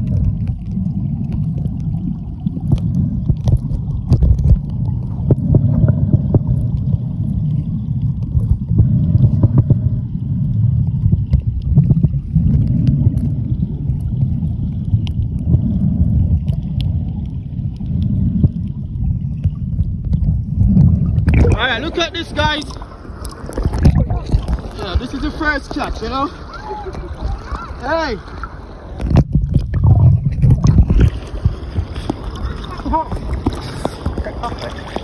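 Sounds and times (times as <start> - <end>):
small underwater clicks: 0.0 - 21.6, 22.4 - 25.0, 28.4 - 35.0
underwater water rumble: 0.0 - 35.0.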